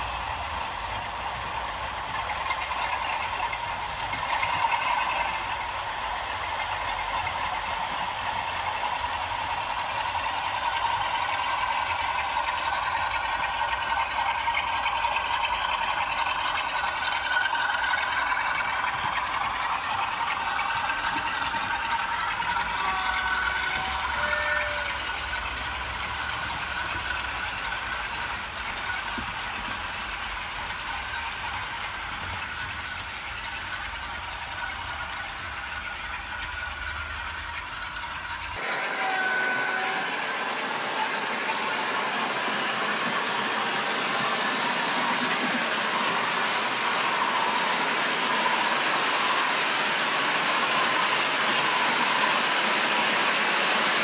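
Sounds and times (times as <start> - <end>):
model train running on track: 0.0 - 54.0.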